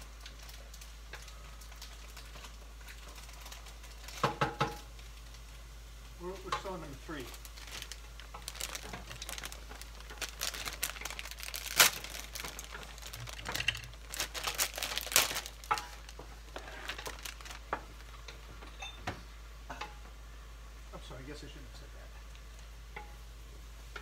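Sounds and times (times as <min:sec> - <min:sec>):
plastic packets crinkling: 0:00.2 - 0:04.3, 0:06.7 - 0:18.2.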